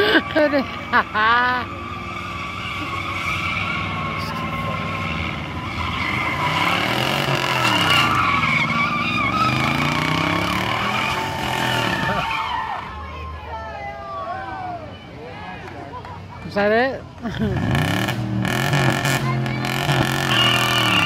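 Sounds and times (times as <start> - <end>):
car engine revving: 0.0 - 12.5, 17.4 - 21.0
tyres squealing on asphalt: 0.0 - 15.6, 17.6 - 21.0.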